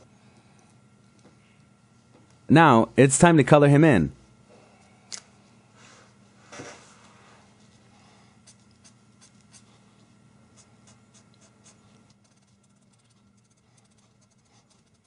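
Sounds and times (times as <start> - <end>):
marker strokes on paper: 10.6 - 15.0.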